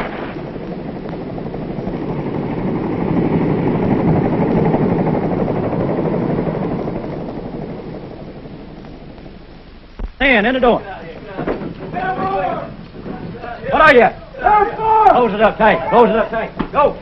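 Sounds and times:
helicopter flying by: 0.0s - 17.0s.

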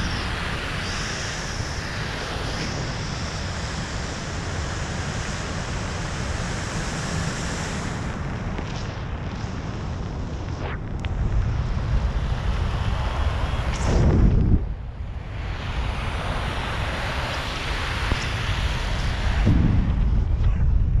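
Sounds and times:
wind buffeting microphone: 7.7s - 21.0s.

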